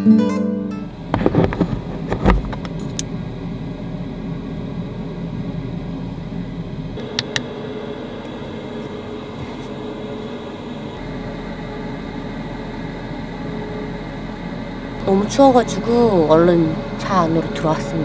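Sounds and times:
steady low hum: 0.7s - 18.0s
knocks and clatters: 1.1s - 3.0s.

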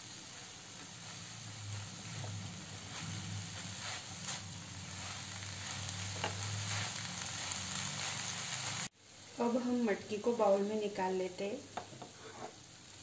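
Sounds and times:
beans sizzling in a frying pan: 0.0s - 13.0s
spatula scraping: 0.1s - 8.9s, 12.0s - 12.6s.

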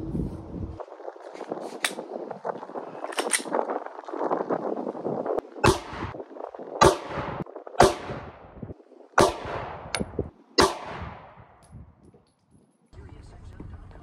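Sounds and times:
handgun shots echoing: 5.6s - 6.1s, 6.8s - 8.3s, 9.2s - 11.4s.

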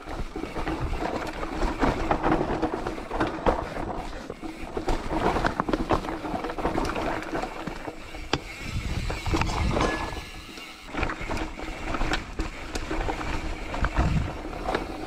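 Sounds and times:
bicycle tyres crunching on gravel: 0.0s - 15.0s
bike knocking and rattling: 0.0s - 15.0s
wind rumbling on microphone: 8.3s - 10.4s, 12.0s - 15.0s.

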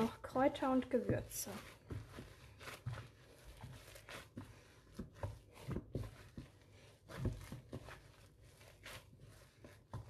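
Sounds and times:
hand kneading sticky dough: 0.0s - 10.0s.

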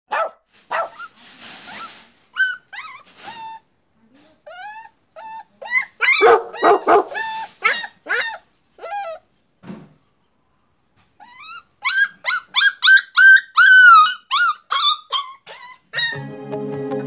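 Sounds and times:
puppy whining and yelping: 0.7s - 3.7s, 4.4s - 9.3s, 11.2s - 16.2s.

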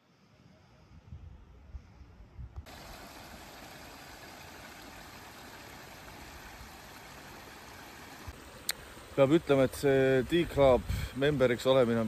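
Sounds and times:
water running over rocks: 2.6s - 12.0s.

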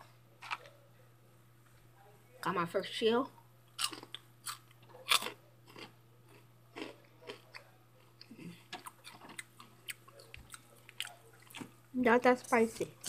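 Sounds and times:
steady low hum: 0.0s - 13.0s
chips crunching while chewed: 3.7s - 11.8s.

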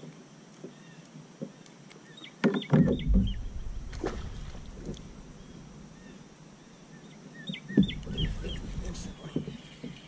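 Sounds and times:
songbird chirping: 0.0s - 10.0s
fish splashing into water: 3.1s - 6.1s
knocks on plastic boat: 7.8s - 8.3s.

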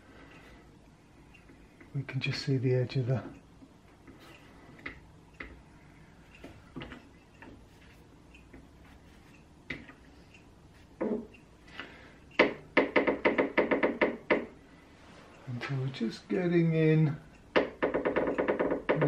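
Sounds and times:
sharp knocks: 12.4s - 14.6s, 17.5s - 19.0s.

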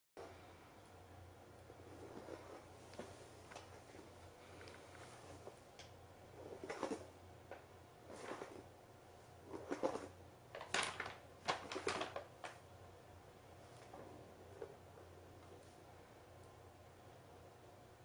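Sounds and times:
paper bag crinkling: 9.6s - 12.6s.

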